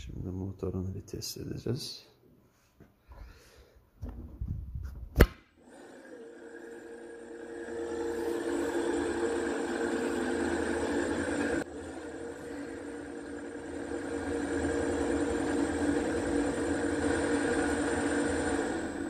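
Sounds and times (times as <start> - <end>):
electric motor whine: 5.6 - 19.0.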